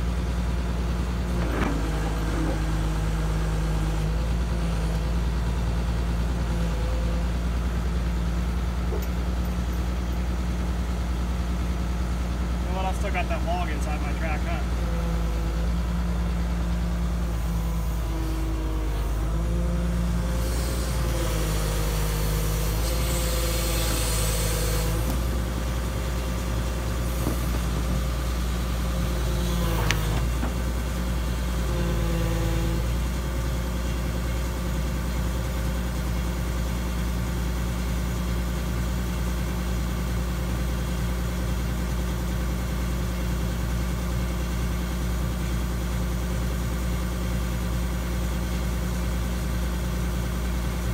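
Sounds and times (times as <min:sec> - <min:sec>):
diesel engine running under load: 0:00.0 - 0:50.9
hydraulic whine: 0:01.0 - 0:05.0, 0:17.0 - 0:33.2.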